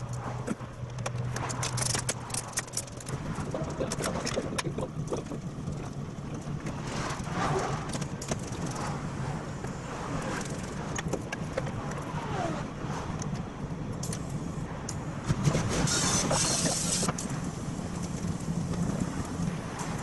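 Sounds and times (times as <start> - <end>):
metal parts clicking and tapping: 0.0 - 6.5
low mechanical hum: 0.0 - 20.0.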